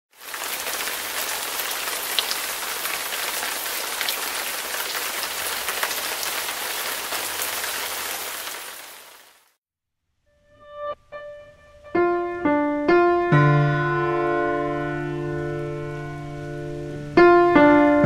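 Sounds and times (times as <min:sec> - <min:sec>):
steady rain falling: 0:00.1 - 0:09.6, 0:14.8 - 0:17.2.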